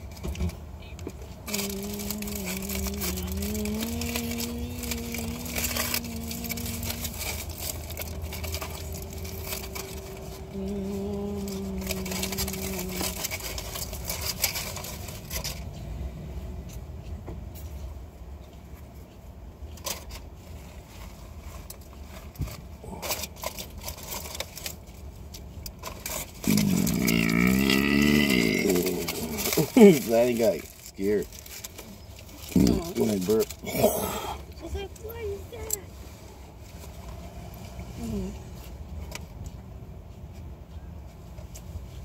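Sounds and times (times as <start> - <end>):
foil wrapper crinkling: 0.0 - 15.7, 21.0 - 35.8
low rumble inside a car: 0.0 - 42.0
loud burp: 26.4 - 29.7.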